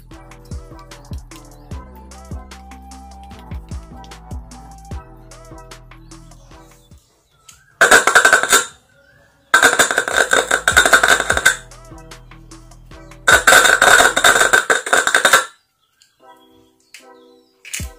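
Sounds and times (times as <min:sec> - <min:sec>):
horn speaker playing loud music: 0:00.1 - 0:06.8, 0:07.8 - 0:08.8, 0:09.6 - 0:15.5.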